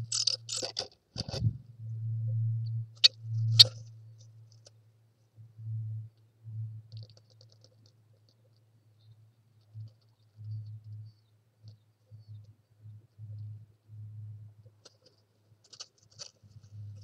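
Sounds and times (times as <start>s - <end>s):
bird scratchy clicks: 0.0s - 1.4s, 3.0s - 3.8s, 6.9s - 8.6s, 14.8s - 17.0s
faint high ticks: 6.1s - 13.6s.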